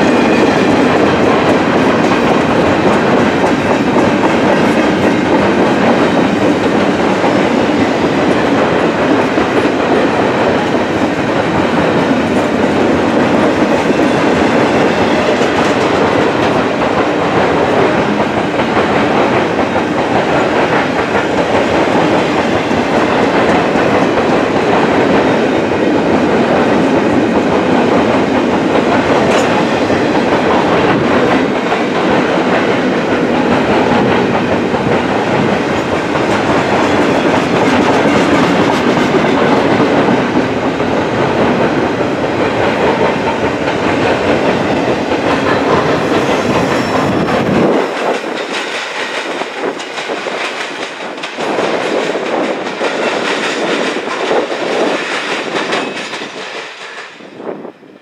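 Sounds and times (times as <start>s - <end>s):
wheels clattering on rail: 0.0s - 57.4s
freight train rumble: 0.0s - 58.0s.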